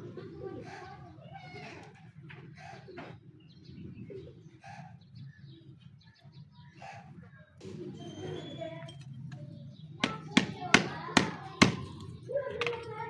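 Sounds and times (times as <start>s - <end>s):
dove cooing: 0.0s - 8.7s
bird chirps: 2.5s - 10.7s.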